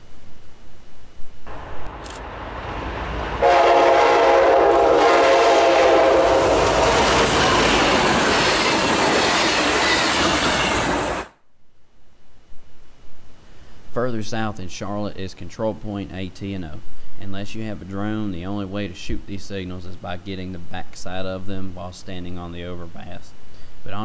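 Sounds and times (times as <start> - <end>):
train wheels rumbling over rails: 1.5 - 11.4
locomotive air horn chord: 3.2 - 11.3.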